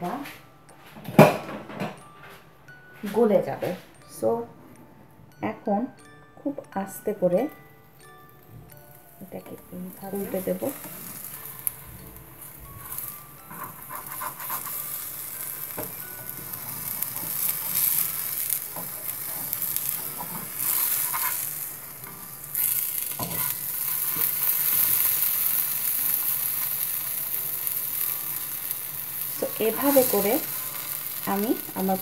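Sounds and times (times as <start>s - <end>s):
crepe sizzling in frying pan: 8.2s - 32.0s
spatula scraping pan: 10.0s - 26.8s, 29.1s - 32.0s.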